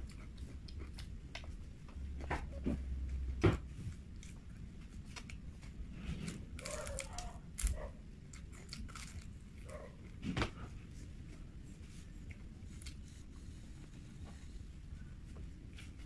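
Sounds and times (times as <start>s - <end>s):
person chewing crunchy food: 0.0s - 2.2s, 3.8s - 10.1s.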